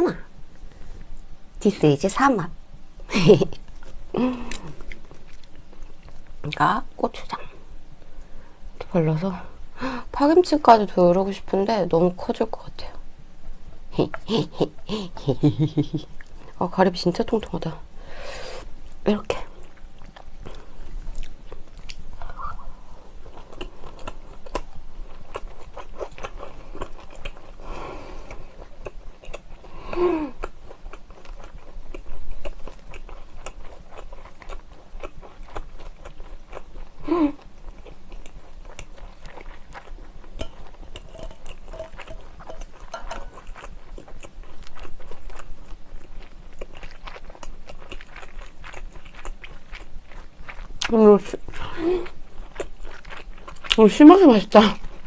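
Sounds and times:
wet chewing: 3.4s - 6.8s, 19.4s - 55.0s
person humming: 4.2s - 4.8s.

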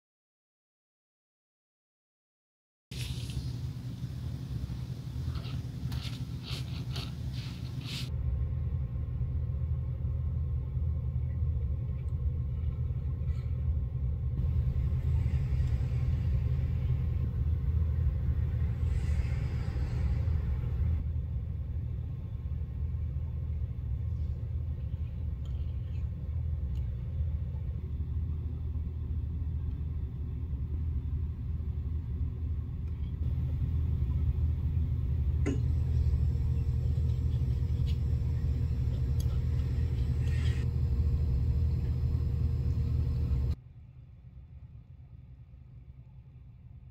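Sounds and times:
applicator scraping leather edge: 5.4s - 8.0s
low rumble: 8.1s - 46.9s.

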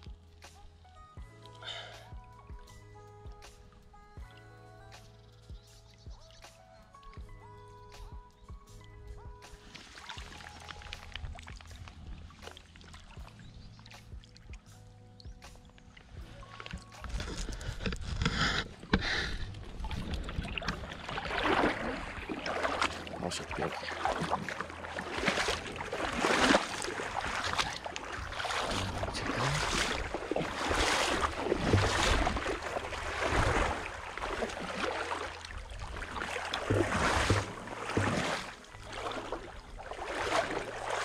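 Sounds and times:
legs sloshing through water: 9.4s - 41.0s.

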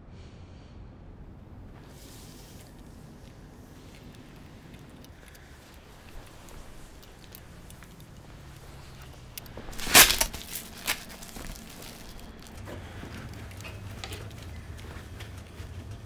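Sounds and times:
low steady hum: 0.0s - 16.0s
clothing rustling: 1.7s - 16.0s.

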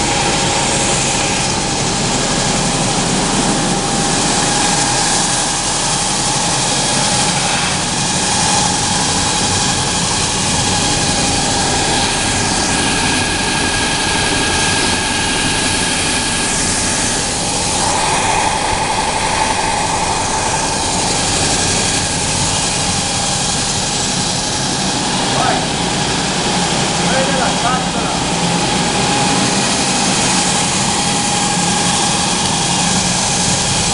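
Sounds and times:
sanding machine hiss and whine: 0.0s - 25.4s.

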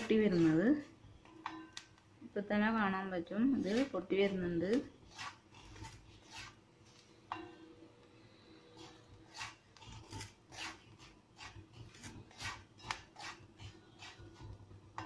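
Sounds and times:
stirring scrapes through salt: 0.0s - 1.0s, 3.5s - 6.6s, 8.7s - 14.8s.

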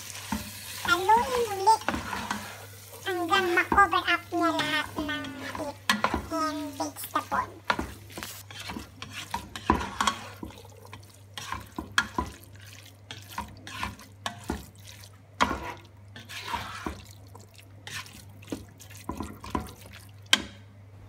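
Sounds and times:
spoon stirring thick sauce: 7.0s - 20.4s.

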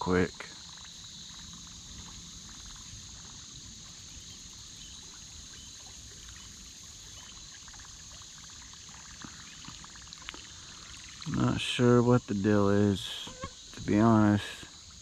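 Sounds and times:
insect chorus: 0.0s - 15.0s
water trickling and lapping: 0.0s - 15.0s.

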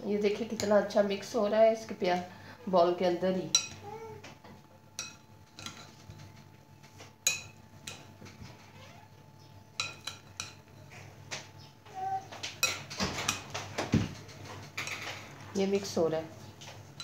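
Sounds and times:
metal spoon clinking against glass bowl: 3.5s - 3.8s.

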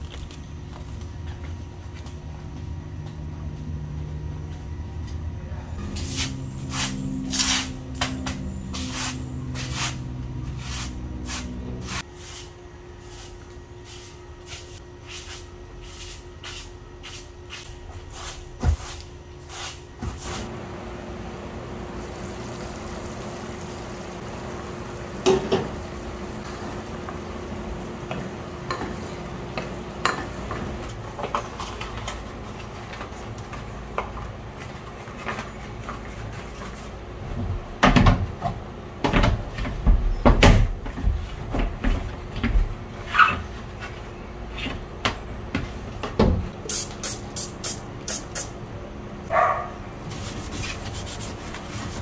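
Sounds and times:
faint hum: 0.0s - 31.2s.

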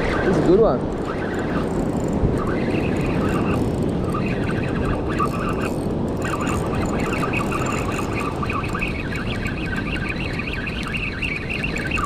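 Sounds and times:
fishing reel gears whirring: 0.0s - 12.0s
wind: 0.0s - 12.0s.

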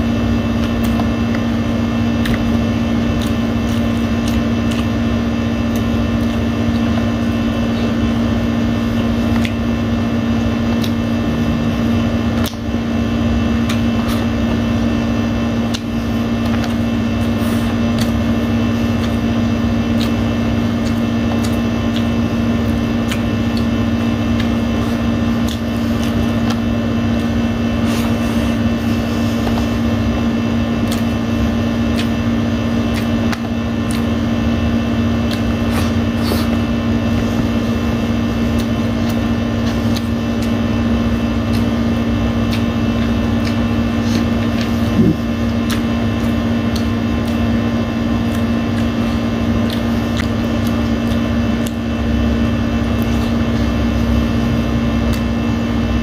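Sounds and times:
air conditioner humming: 0.0s - 56.0s
eating by hand clicks: 2.2s - 5.0s, 9.3s - 9.7s, 10.7s - 11.1s, 12.3s - 12.7s, 15.6s - 27.4s, 30.8s - 31.2s, 31.8s - 34.3s, 35.1s - 36.6s, 38.5s - 40.6s, 41.3s - 51.9s.

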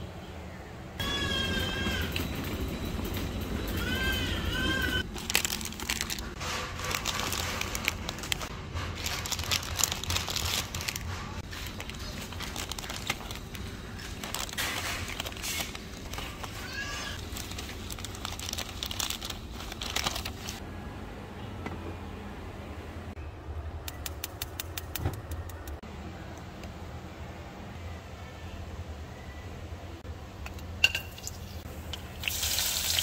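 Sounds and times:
plastic packets crinkling: 5.0s - 20.6s.

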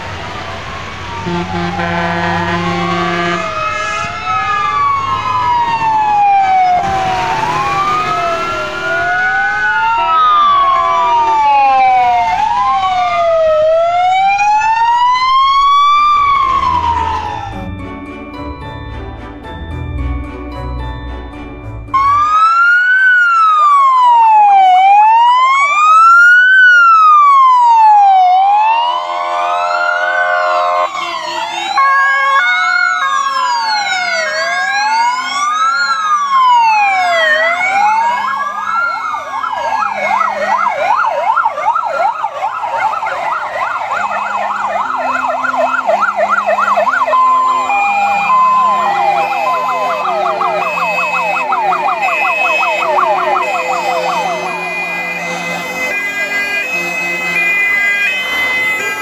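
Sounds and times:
fast sweeping sirens: 0.0s - 18.1s, 21.9s - 59.0s
fire engine siren wailing: 0.0s - 19.3s, 21.9s - 59.0s
two-tone horn: 1.2s - 4.8s, 6.8s - 9.2s, 28.9s - 32.4s, 44.2s - 59.0s.

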